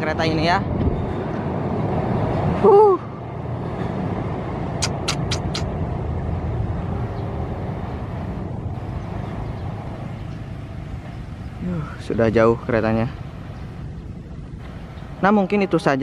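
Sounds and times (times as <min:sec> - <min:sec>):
quick sharp clicks: 0:04.8 - 0:05.7.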